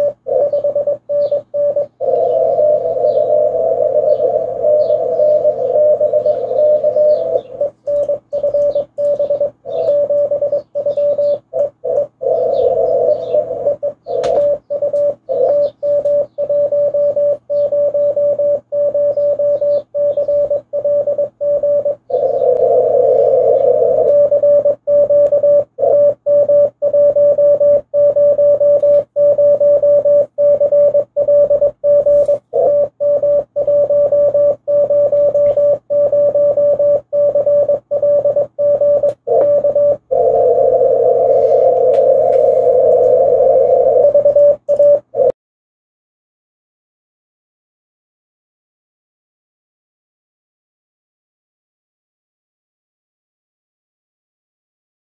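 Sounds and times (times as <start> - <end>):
morse code tone: 0.0 - 45.3
radio hiss: 39.4 - 44.2.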